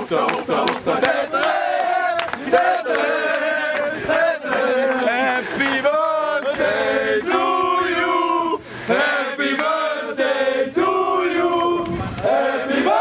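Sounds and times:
men chanting together: 0:00.0 - 0:13.0.

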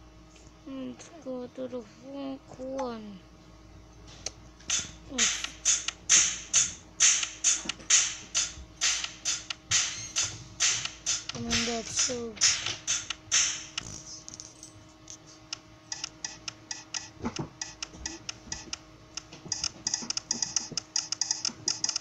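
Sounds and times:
electronic drum hits: 0:04.7 - 0:13.8.

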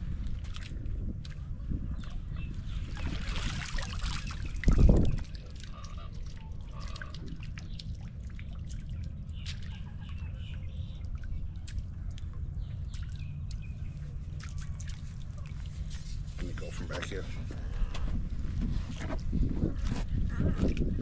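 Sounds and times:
water dripping and trickling: 0:00.2 - 0:01.4, 0:02.0 - 0:17.2
water pouring from net: 0:03.0 - 0:09.7.

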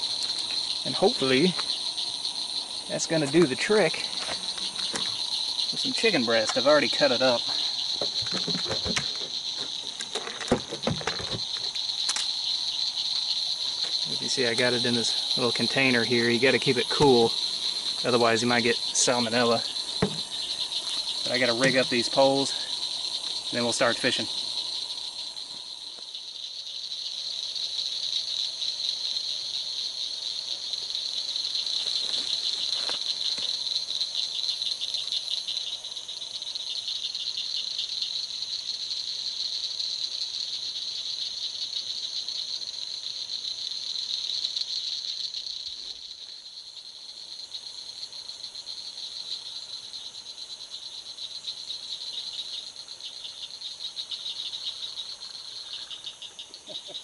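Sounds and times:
night insects trilling: 0:00.0 - 0:57.0.

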